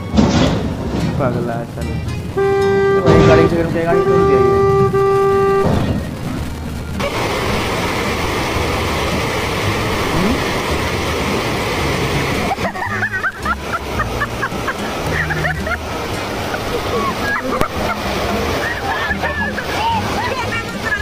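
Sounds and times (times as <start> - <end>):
rushing water: 0.0 - 21.0
car horn: 2.4 - 6.0.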